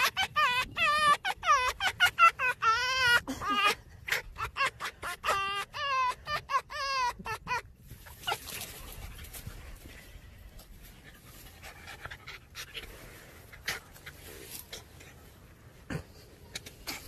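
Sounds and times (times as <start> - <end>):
fox stuttering calls: 0.0 - 10.1
porcupine soft breathy sounds: 8.5 - 17.0.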